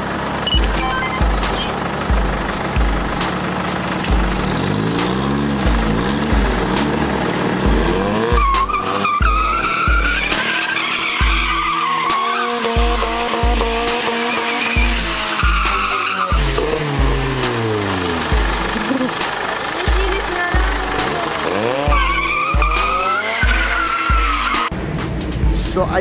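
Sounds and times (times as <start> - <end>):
car engine revving: 0.0 - 26.0
background music with bass thump: 0.4 - 10.4, 12.6 - 19.2, 19.9 - 26.0
tyres squealing: 7.8 - 17.6, 18.5 - 24.7.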